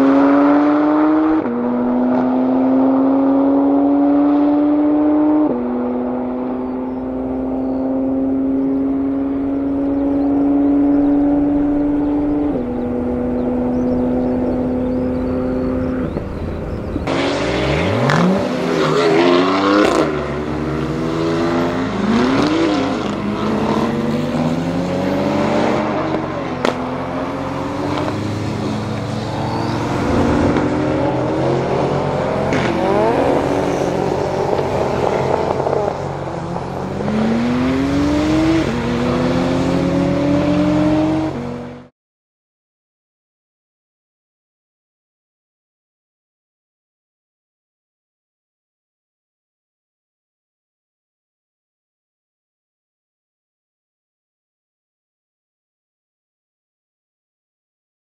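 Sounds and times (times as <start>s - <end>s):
cars accelerating past: 0.0s - 41.9s
sports car engines accelerating: 0.0s - 41.9s.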